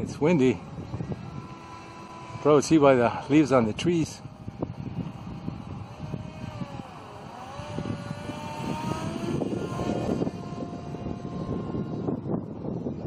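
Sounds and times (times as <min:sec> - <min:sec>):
electric motor propeller whining: 0:00.0 - 0:13.0
wind rumbling on microphone: 0:00.0 - 0:13.0.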